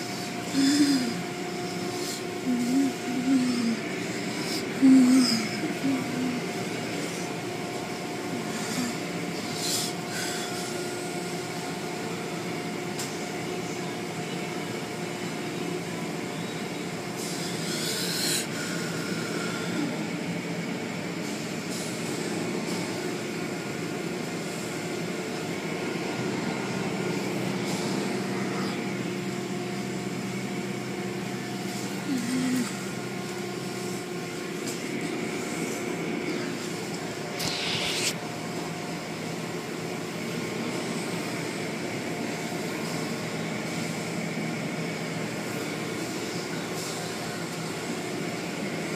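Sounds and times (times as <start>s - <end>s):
machine hum: 0.0s - 21.6s, 22.4s - 48.6s
deeper hum: 37.2s - 38.4s.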